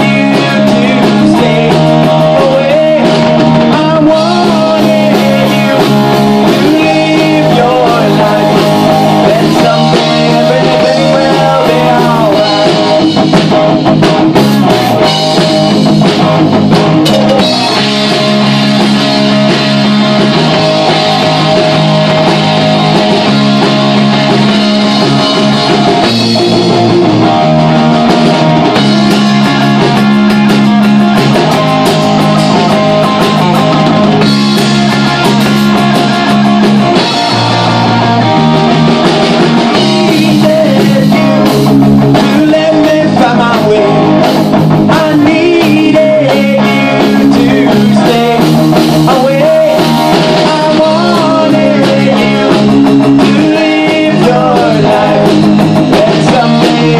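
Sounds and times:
bass guitar: 0:00.0 - 0:56.9
drum kit: 0:00.0 - 0:56.9
electric guitar: 0:00.0 - 0:56.9.

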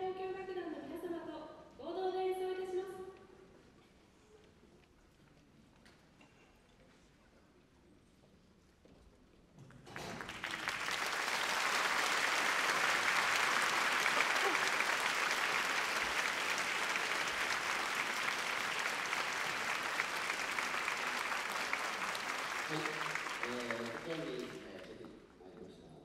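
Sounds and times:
audience applauding: 0:09.9 - 0:25.0.

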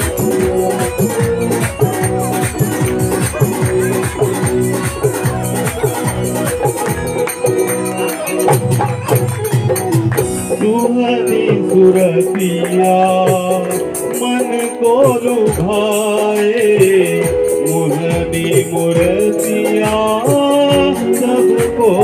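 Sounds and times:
hand clapping: 0:00.0 - 0:10.6, 0:11.9 - 0:15.8
dholak drumming: 0:00.0 - 0:22.0
held instrumental notes: 0:00.0 - 0:22.0
person singing: 0:00.0 - 0:22.0
rattling percussion: 0:00.0 - 0:22.0.

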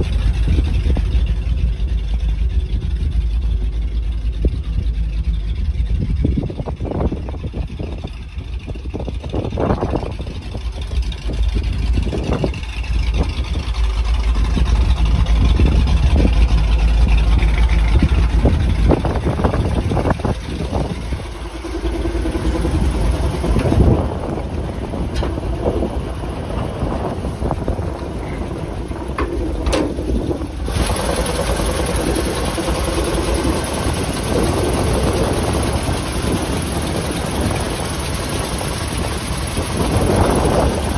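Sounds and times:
truck engine idling: 0:00.0 - 0:40.9
wind rumbling on microphone: 0:00.0 - 0:40.9.

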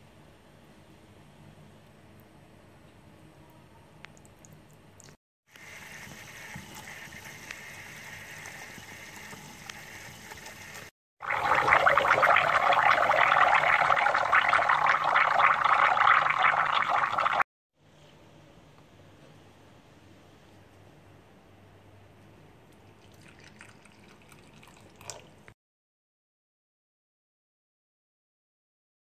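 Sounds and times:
stovetop coffee pot gurgling: 0:05.6 - 0:17.4, 0:22.8 - 0:25.3.

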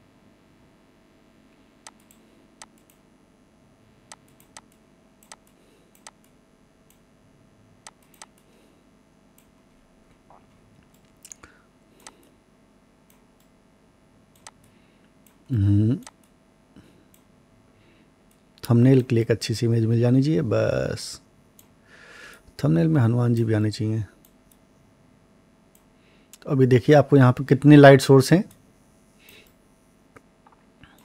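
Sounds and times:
mouse and keyboard clicks: 0:04.1 - 0:06.4, 0:07.9 - 0:08.5.

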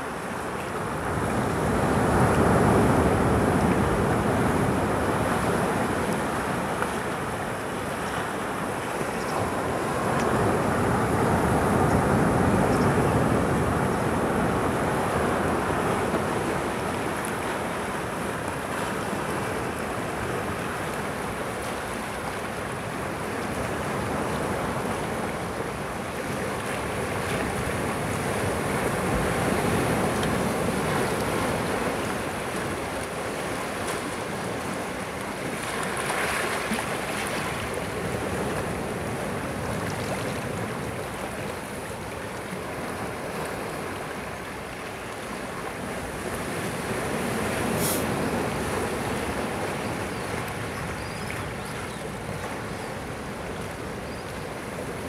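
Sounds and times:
waves breaking on rocky shore: 0:00.0 - 0:55.0.

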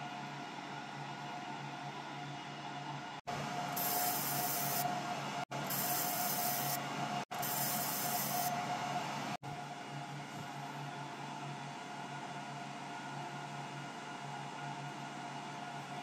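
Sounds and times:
steady machine hum: 0:00.0 - 0:16.0
laser engraver hissing buzz: 0:03.7 - 0:05.0, 0:05.6 - 0:08.7.

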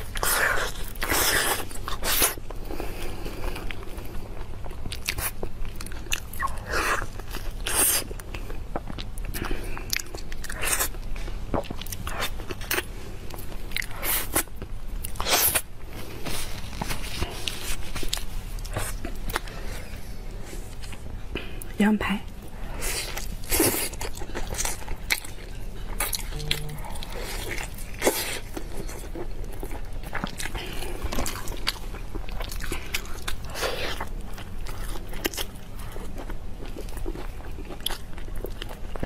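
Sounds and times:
person chewing and biting: 0:04.6 - 0:19.6, 0:22.8 - 0:39.0.

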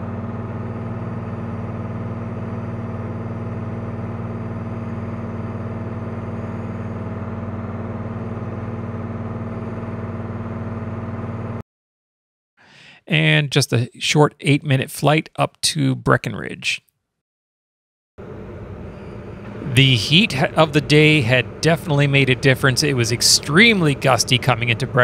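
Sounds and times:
propeller engine drone in cockpit: 0:00.0 - 0:11.6, 0:18.2 - 0:25.0.

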